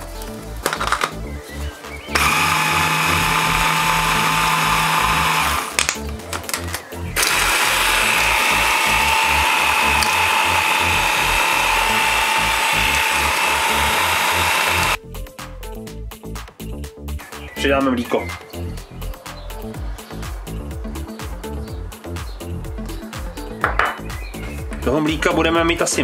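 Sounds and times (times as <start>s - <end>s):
electric blender grinding: 2.1s - 5.9s, 7.2s - 15.0s.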